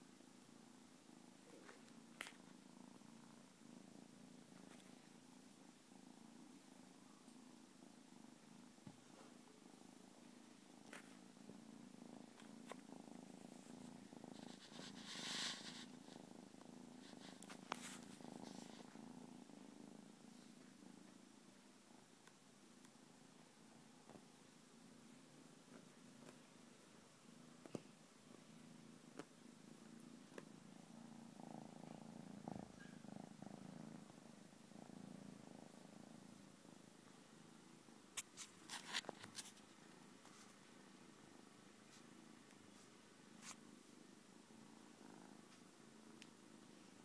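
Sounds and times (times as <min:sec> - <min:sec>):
kitten purring: 0:00.0 - 0:47.0
brief rustle: 0:38.2 - 0:40.6.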